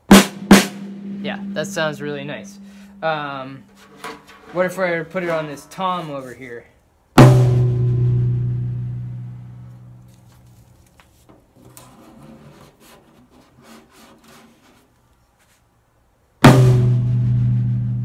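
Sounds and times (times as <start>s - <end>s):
tom-tom drum ringing: 0.1s - 4.7s, 7.2s - 9.6s
taps and rustles on drumhead: 10.0s - 15.7s.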